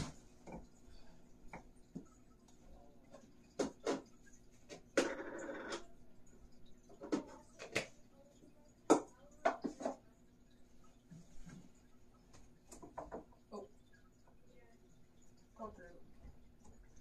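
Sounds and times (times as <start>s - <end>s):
objects knocking and clicking: 3.1s - 5.9s, 6.8s - 8.0s, 8.9s - 10.0s, 12.6s - 13.4s.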